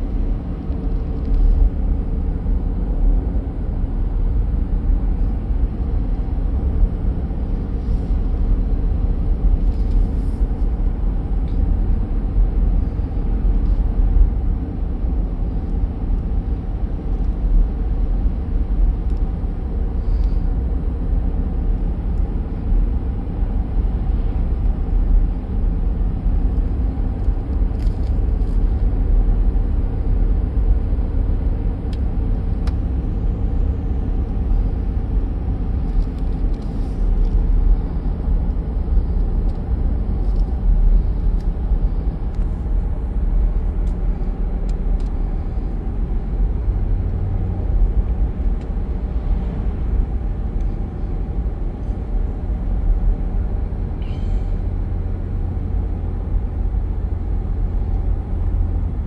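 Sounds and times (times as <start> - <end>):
car engine rumble: 0.0 - 59.0
tyre road noise: 0.0 - 59.0.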